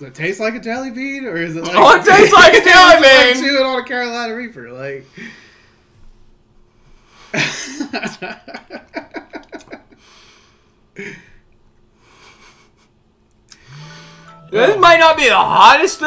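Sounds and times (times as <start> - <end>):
man's breathy laughter: 12.0 - 13.0.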